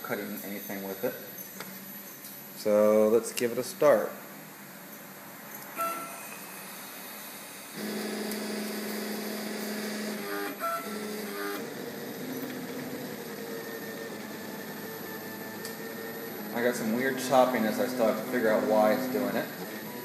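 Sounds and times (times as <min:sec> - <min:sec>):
stepper motors whining: 0:07.8 - 0:20.0.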